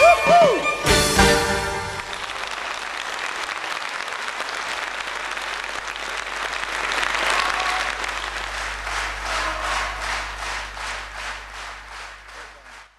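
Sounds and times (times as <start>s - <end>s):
audience applauding: 1.2s - 12.9s.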